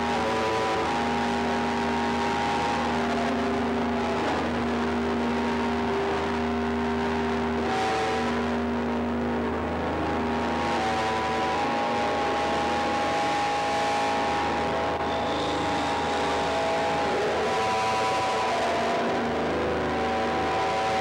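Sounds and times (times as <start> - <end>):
electronic drone tones: 0.0 - 21.0
low hum: 8.2 - 20.8.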